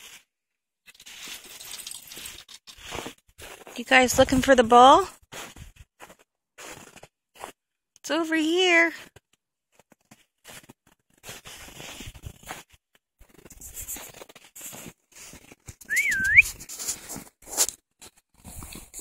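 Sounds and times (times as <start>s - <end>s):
footsteps crunching through snow: 0.9s - 3.8s, 5.2s - 7.6s, 10.4s - 17.8s
person whistling for dog: 15.8s - 16.6s.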